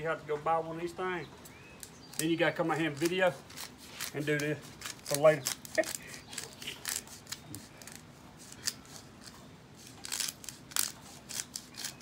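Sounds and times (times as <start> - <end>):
pepper grinder crunching and clicking: 1.8 - 9.0, 9.8 - 12.0.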